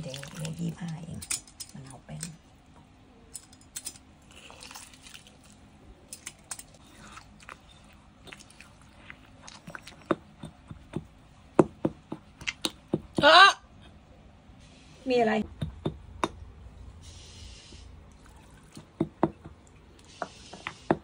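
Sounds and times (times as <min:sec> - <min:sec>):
wet squelching in mortar: 0:04.2 - 0:10.6
pestle knocking against stone: 0:10.0 - 0:13.3, 0:15.4 - 0:16.4, 0:18.8 - 0:19.6.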